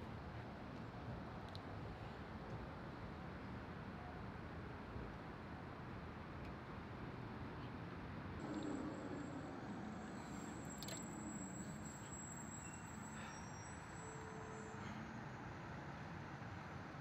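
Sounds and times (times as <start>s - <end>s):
road traffic: 0.0s - 17.0s
thin high whine: 8.4s - 15.1s.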